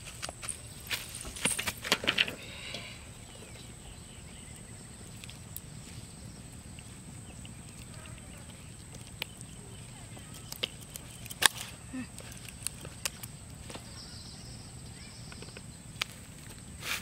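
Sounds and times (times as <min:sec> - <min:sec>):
footsteps on dry grass and leaves: 0:00.0 - 0:01.8, 0:16.0 - 0:17.0.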